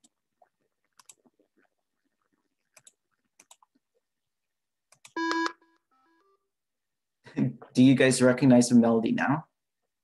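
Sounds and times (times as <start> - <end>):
computer mouse clicks: 0.9 - 1.3, 2.7 - 3.8, 4.9 - 5.4.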